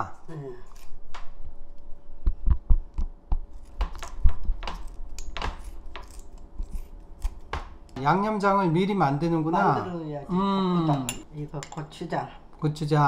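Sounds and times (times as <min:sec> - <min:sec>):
scissors snipping: 0:03.0 - 0:07.6.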